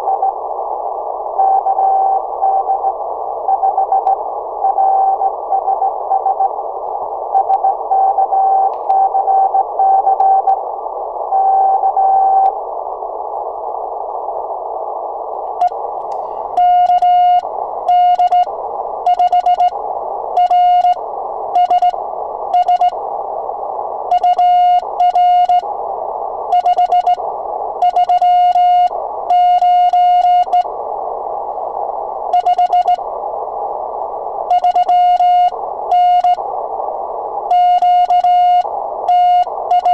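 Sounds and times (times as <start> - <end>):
faint incoming morse signal: 0.0 - 0.4, 1.3 - 6.6, 16.6 - 19.8, 20.4 - 23.0, 24.1 - 25.6, 26.5 - 27.2, 27.8 - 30.7, 32.3 - 33.0, 34.5 - 36.4, 37.5 - 39.9
receiver hiss: 0.0 - 39.9
morse sidetone beeps: 16.6 - 18.5, 19.1 - 19.7, 21.6 - 22.0, 22.6 - 22.9, 24.1 - 25.6, 26.5 - 27.2, 27.8 - 30.6, 32.4 - 33.0, 34.5 - 36.4, 37.5 - 39.9.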